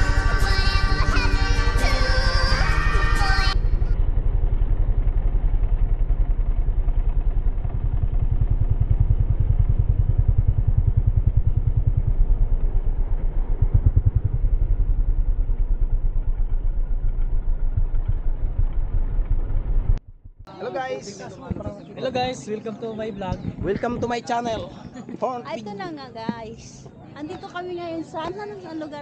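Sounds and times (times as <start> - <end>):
motorcycle engine throbbing: 0.0 - 20.6.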